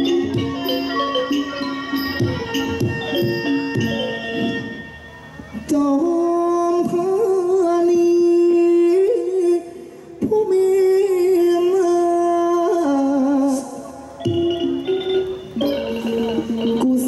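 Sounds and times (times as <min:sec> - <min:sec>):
man singing into microphone: 0:05.6 - 0:14.2, 0:16.5 - 0:17.0.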